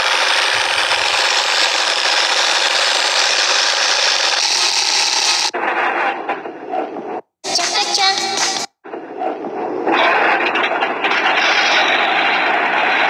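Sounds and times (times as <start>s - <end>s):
film projector rasping: 0.0s - 5.5s.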